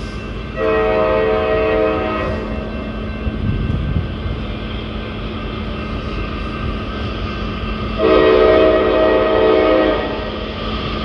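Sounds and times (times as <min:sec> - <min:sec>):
train rumble: 0:00.0 - 0:11.0
locomotive air horn: 0:00.6 - 0:02.7, 0:07.9 - 0:10.3.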